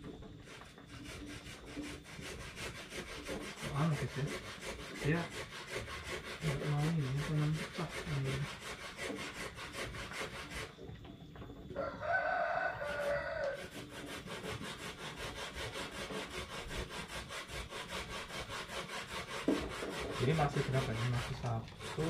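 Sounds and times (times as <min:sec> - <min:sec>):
rooster crowing: 0:11.7 - 0:13.8.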